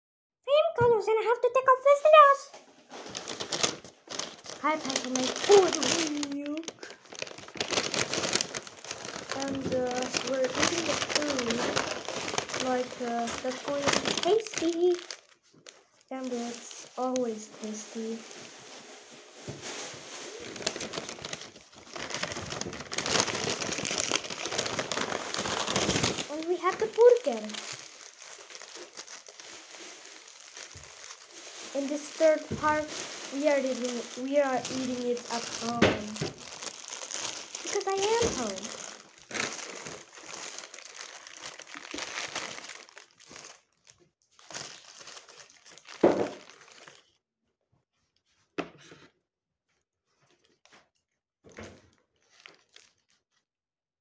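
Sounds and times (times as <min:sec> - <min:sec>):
paper bag rustling: 0:02.8 - 0:43.8.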